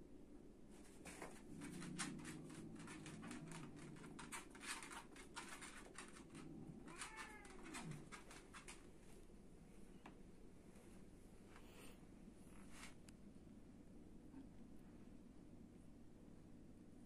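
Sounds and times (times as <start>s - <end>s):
cat growling low: 1.4s - 8.4s
soft clicks and scuffs: 12.5s - 13.2s.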